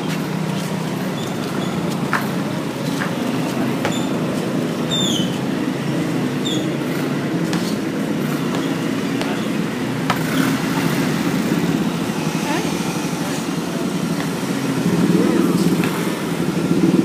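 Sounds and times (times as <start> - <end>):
low engine-like hum: 0.0 - 17.0
basketball bouncing on concrete: 1.8 - 4.5, 6.8 - 11.6.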